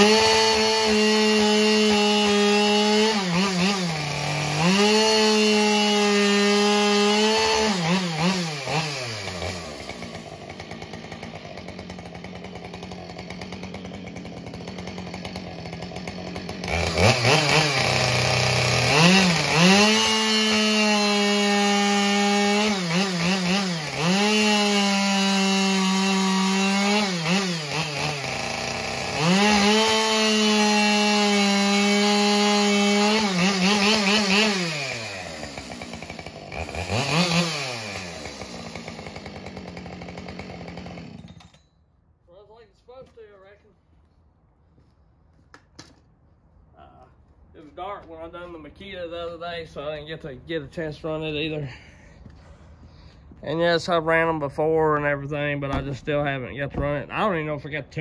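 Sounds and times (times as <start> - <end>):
chainsaw running at full throttle: 0.0 - 41.6.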